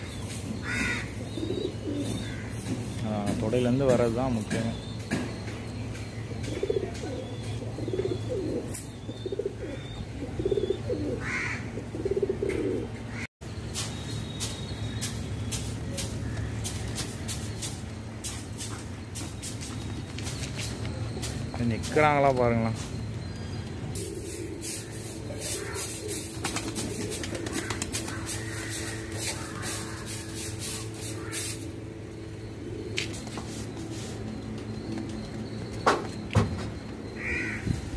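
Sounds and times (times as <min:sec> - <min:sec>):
pigeons cooing: 0:00.0 - 0:13.3, 0:20.6 - 0:36.0.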